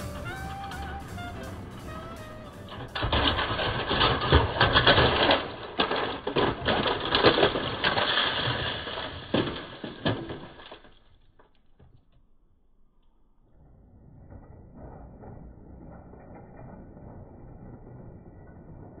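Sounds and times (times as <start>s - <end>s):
mechanical rattling and clattering: 0.0s - 10.9s, 14.0s - 19.0s.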